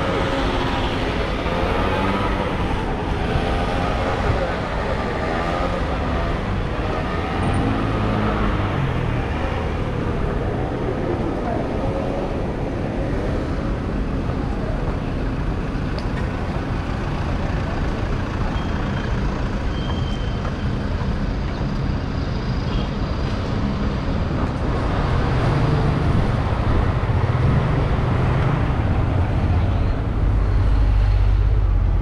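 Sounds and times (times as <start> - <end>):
car and motorbike engines: 0.0 - 32.0.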